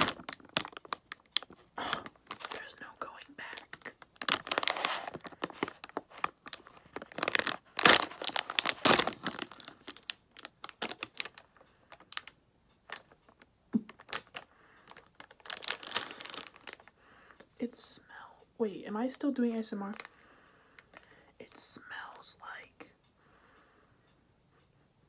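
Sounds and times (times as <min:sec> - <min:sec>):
plastic wrapper crinkling: 0:00.0 - 0:16.9, 0:19.9 - 0:20.1.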